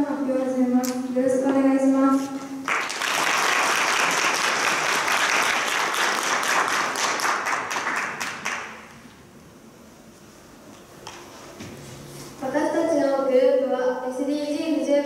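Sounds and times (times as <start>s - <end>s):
audience applauding: 2.6s - 8.9s.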